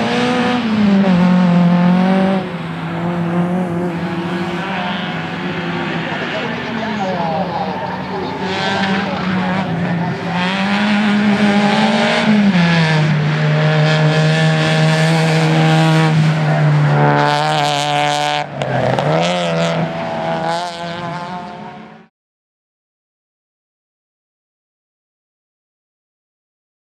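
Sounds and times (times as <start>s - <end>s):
racing car engine running hard: 0.0s - 22.1s.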